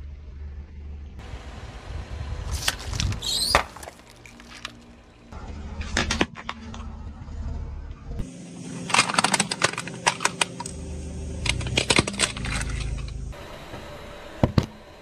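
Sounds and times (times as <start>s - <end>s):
car rumble: 0.0s - 14.1s
tyre crushing small hard objects: 2.5s - 5.0s, 8.8s - 10.8s, 11.4s - 13.2s.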